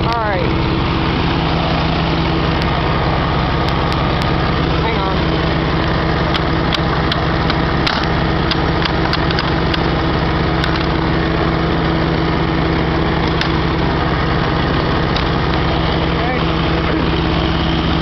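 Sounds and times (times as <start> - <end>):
lawn tractor engine running: 0.0 - 18.0
sharp clicks and ticks: 2.6 - 2.8, 3.6 - 4.4, 5.8 - 9.9, 10.6 - 11.0, 13.3 - 13.6, 14.8 - 15.7.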